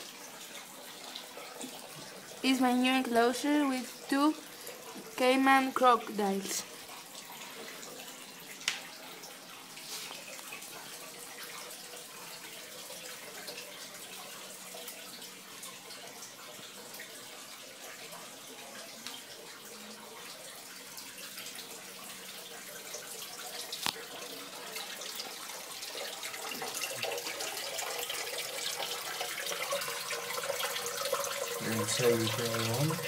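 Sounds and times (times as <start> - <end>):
water trickling: 0.0 - 33.0.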